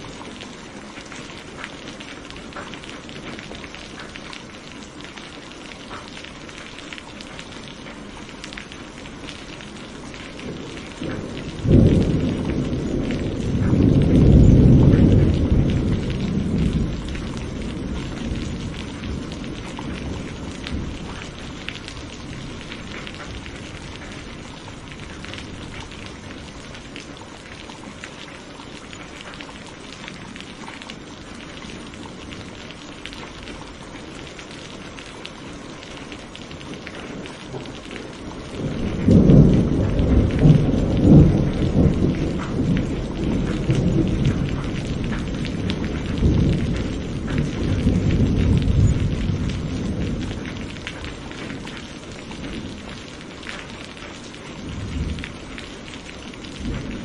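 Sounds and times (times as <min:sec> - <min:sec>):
steady rain: 0:00.0 - 0:57.0
rolling thunder rumble: 0:09.4 - 0:27.2, 0:36.5 - 0:53.5, 0:54.5 - 0:57.0.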